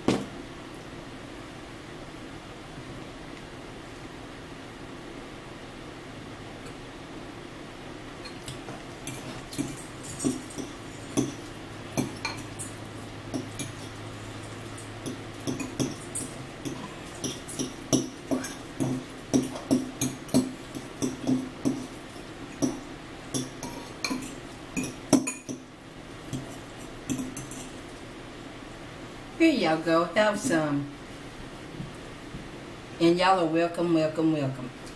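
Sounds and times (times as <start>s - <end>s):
metal fork scraping in a bowl: 15.5s - 22.0s, 23.3s - 25.6s.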